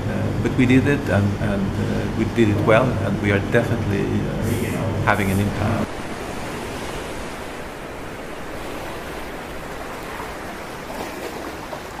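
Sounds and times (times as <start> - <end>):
rushing water: 4.0 - 12.0.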